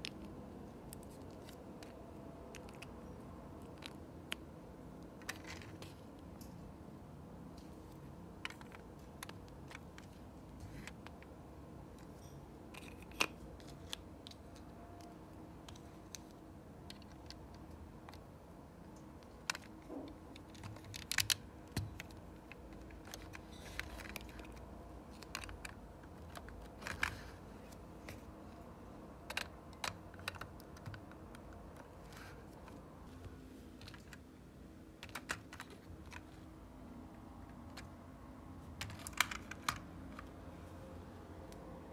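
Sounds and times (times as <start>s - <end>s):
plastic bricks clicking: 19.2s - 27.3s, 29.3s - 32.2s.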